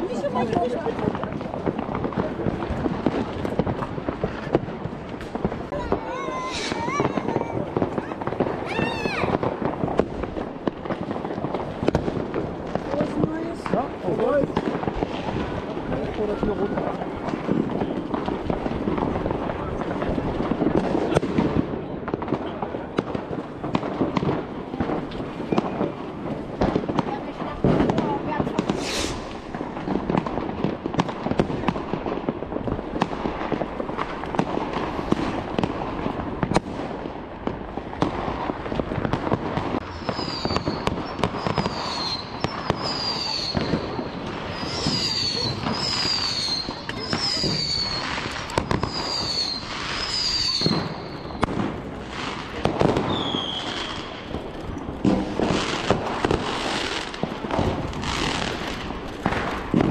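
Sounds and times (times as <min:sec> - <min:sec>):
fireworks bangs and crackles: 0:00.0 - 0:59.9
falling firework whistles: 0:06.2 - 0:09.5, 0:28.6 - 0:29.4, 0:39.8 - 0:58.8.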